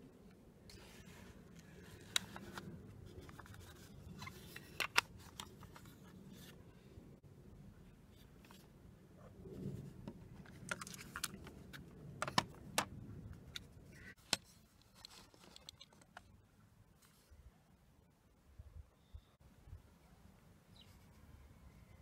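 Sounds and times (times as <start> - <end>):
soft rubbing and handling noise: 0.6 - 7.2, 7.8 - 12.5, 13.4 - 17.6
plastic cassette case clicks: 3.2 - 5.8, 10.7 - 13.7.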